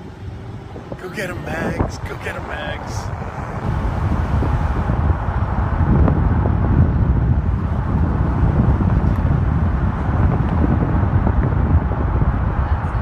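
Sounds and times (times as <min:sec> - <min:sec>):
car road noise: 0:00.0 - 0:13.0
wind buffeting microphone: 0:00.0 - 0:13.0.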